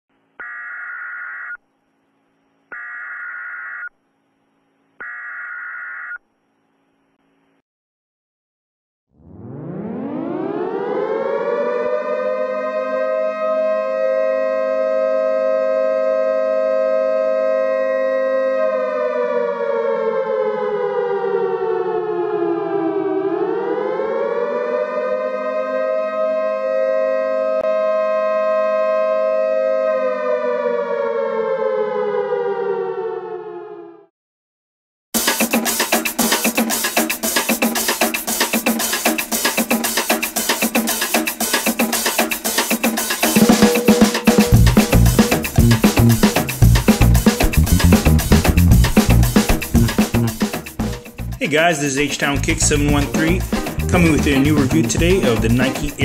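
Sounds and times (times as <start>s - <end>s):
long electronic beeps: 0.4s - 1.6s, 2.7s - 4.0s
faint steady hum: 1.6s - 3.0s
air-raid siren wailing: 9.2s - 34.1s, 43.3s - 50.2s.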